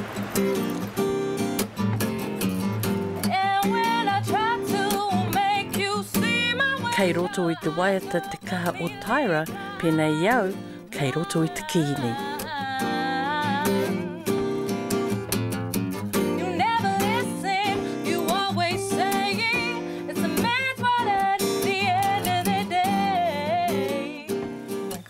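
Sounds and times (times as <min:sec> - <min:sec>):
acoustic guitar: 0:00.0 - 0:25.0
person singing with vibrato: 0:03.2 - 0:14.4.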